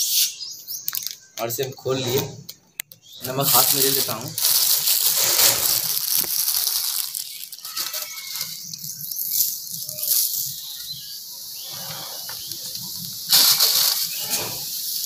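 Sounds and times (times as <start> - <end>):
soda fizzing and hissing: 3.2 - 15.0.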